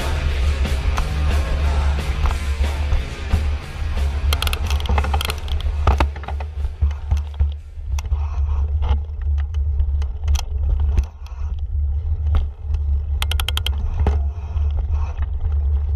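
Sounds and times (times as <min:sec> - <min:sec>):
rapid ticks: 0:00.0 - 0:15.9
wind rumble on microphone: 0:00.0 - 0:15.9
bike knocks and rattles: 0:03.3 - 0:15.9.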